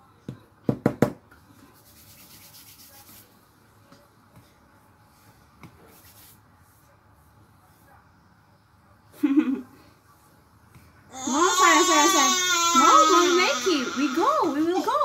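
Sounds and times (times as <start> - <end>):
hands rubbing on skin: 1.8 - 3.3, 5.6 - 6.4.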